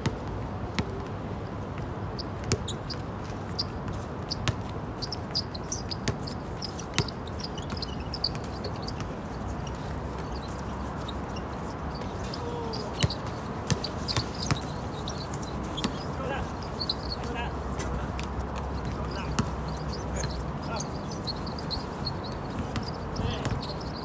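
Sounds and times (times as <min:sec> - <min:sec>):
basketballs bouncing on hard court: 0:02.4 - 0:09.3, 0:11.9 - 0:17.4, 0:18.2 - 0:21.8, 0:22.5 - 0:24.0
background hubbub: 0:06.3 - 0:24.0.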